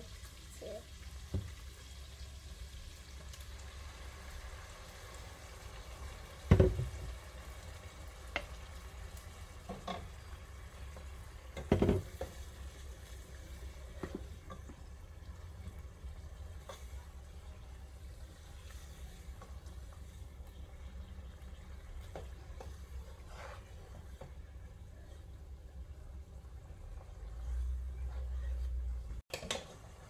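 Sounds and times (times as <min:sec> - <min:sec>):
wooden spoon stirring pot: 0:09.6 - 0:25.5
pot clunks: 0:11.6 - 0:12.4.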